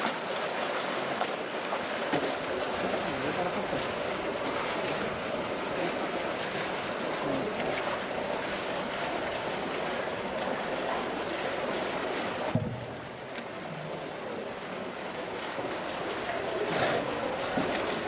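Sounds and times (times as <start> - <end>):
water sloshing and splashing: 0.0 - 18.0
dull thump: 12.5 - 13.1.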